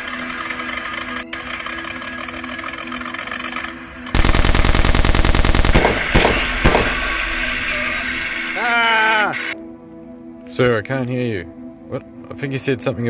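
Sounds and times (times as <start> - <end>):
machine-gun fire: 4.1 - 8.4
single gunshots: 4.2 - 8.2.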